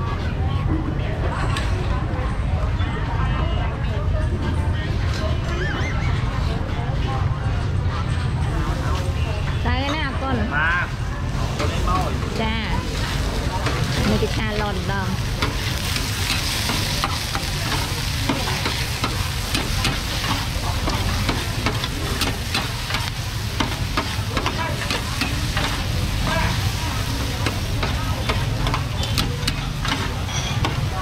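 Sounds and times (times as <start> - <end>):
noodles sizzling in a wok: 11.2 - 31.0
metal spatula scraping a pan: 15.2 - 31.0.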